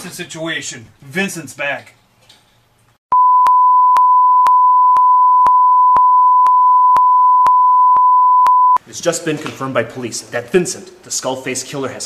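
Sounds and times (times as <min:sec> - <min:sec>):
steady test tone: 0:03.1 - 0:08.8.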